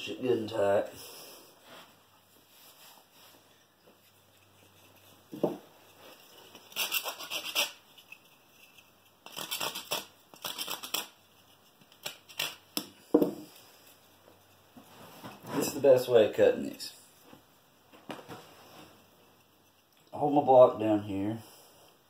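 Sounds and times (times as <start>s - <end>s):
knife scraping wood: 4.0s - 14.4s.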